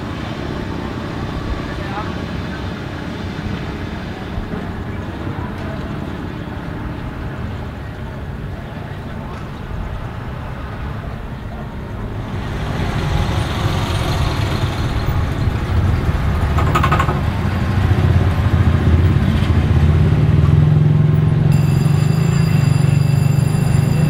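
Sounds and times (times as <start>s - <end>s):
diesel locomotive engine running: 0.0s - 24.0s
high whine: 21.5s - 24.0s.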